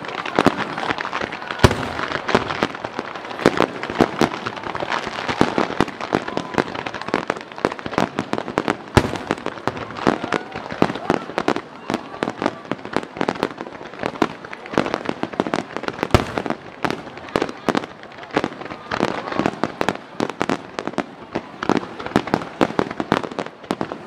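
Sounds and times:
fireworks bursting: 0.0s - 24.0s.

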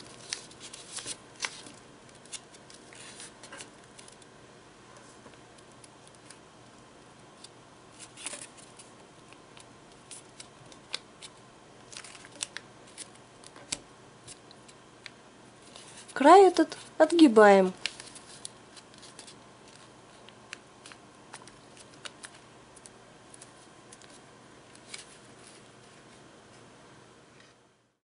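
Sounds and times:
paper being folded and creased: 0.0s - 4.3s, 7.4s - 14.8s, 15.6s - 17.2s, 17.8s - 26.1s.

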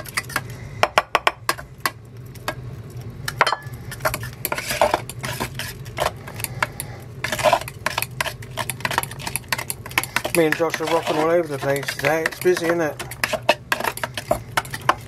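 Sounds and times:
steady low hum: 0.0s - 15.0s
fork scraping a metal saucepan: 3.9s - 15.0s.

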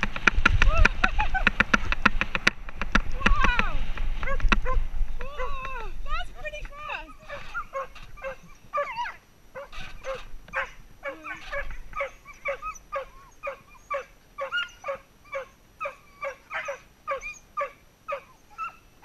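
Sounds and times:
dogs barking and yelping: 4.2s - 5.6s, 6.9s - 19.0s
dog whining: 7.1s - 18.9s.

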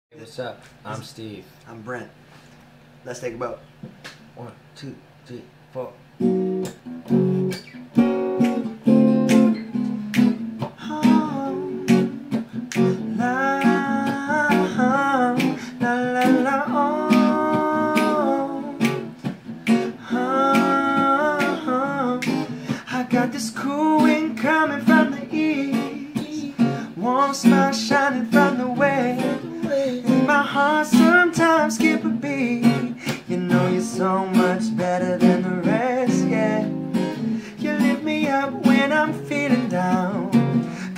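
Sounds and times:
acoustic guitar strumming: 6.2s - 40.9s
person singing: 10.7s - 19.1s, 19.8s - 40.9s.

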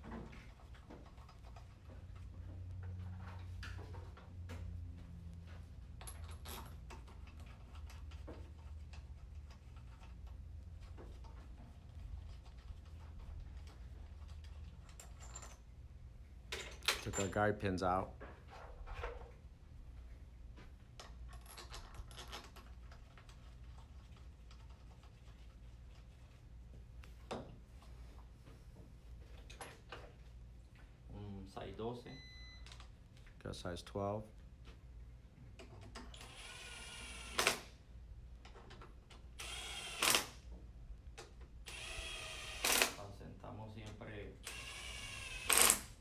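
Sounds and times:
low steady hum: 22.6s - 35.6s.

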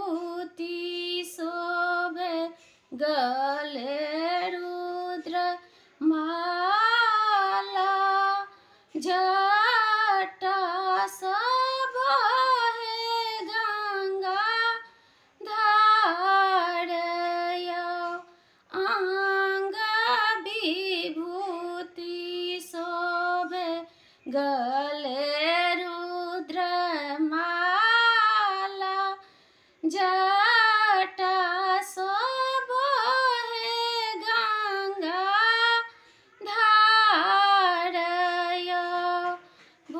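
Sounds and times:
woman singing unaccompanied: 0.0s - 39.9s
singer breathing: 5.6s - 6.0s, 8.5s - 9.0s, 14.9s - 15.4s, 18.3s - 18.7s, 23.9s - 24.3s, 29.2s - 29.8s, 39.4s - 39.9s.

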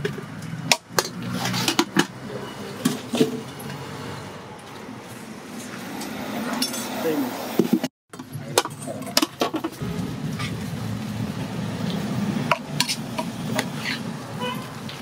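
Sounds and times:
traffic: 0.0s - 15.0s
steel pots and ladles clinking: 8.1s - 9.8s.

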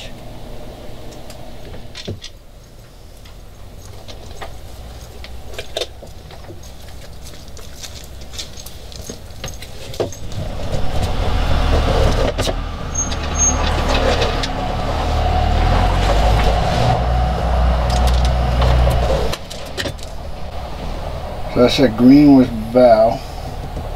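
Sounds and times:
vehicle engine running: 2.4s - 23.9s.

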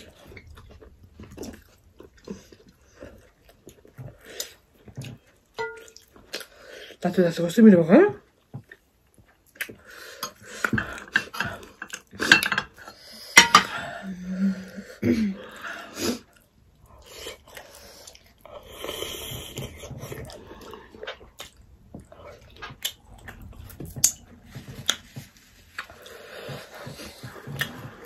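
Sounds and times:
chewing and lip-smacking: 0.0s - 7.0s, 8.2s - 12.3s, 16.2s - 28.0s
dishes clinking: 5.6s - 6.0s, 10.7s - 13.9s.

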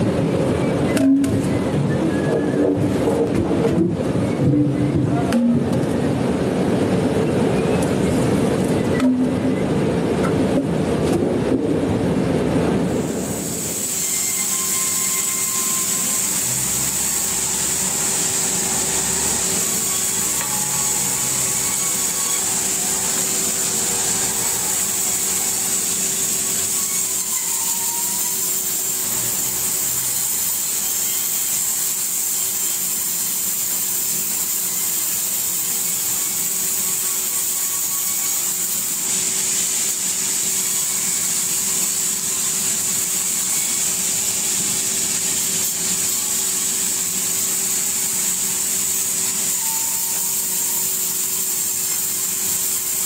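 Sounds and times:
band saw cutting log: 14.1s - 30.1s.

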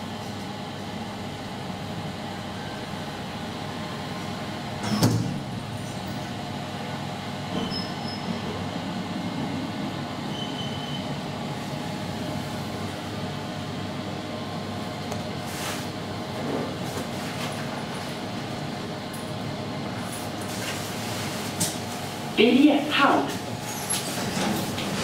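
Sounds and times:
elevator hum and rumble: 0.0s - 25.0s
elevator doors closing knock: 4.8s - 5.8s.

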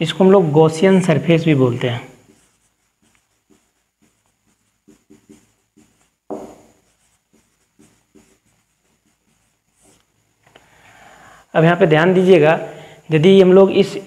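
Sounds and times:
writing strokes on a board: 1.5s - 10.3s.

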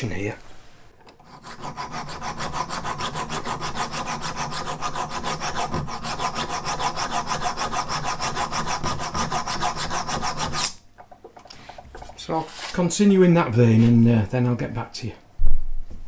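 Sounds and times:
hand file rasping metal: 1.2s - 10.8s.

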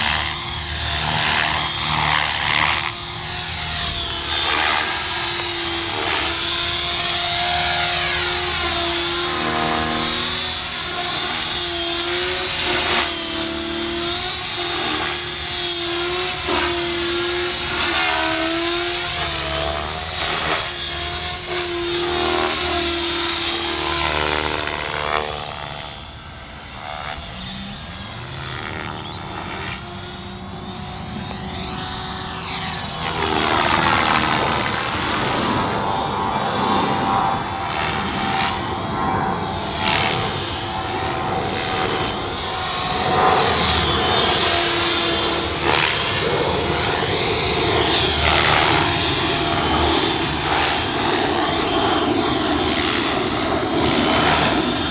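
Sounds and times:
helicopter rotor: 0.0s - 54.9s
rc helicopter motor whine: 0.0s - 54.9s.

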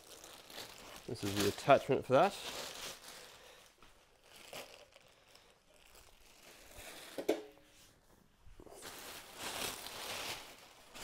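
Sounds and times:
bubble wrap crinkling: 0.0s - 11.0s.

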